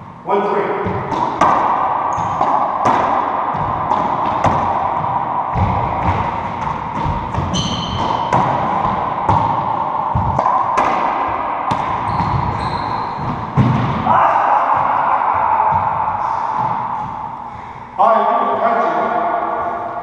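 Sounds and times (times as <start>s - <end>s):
shoes squeaking on hardwood floor: 7.5s - 8.2s, 12.1s - 13.4s.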